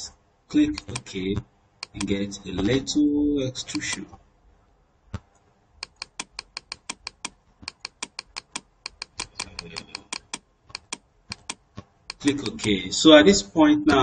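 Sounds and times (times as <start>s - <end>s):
computer input clicks: 0.5s - 1.2s, 1.8s - 2.9s, 3.7s - 4.0s, 5.8s - 12.8s.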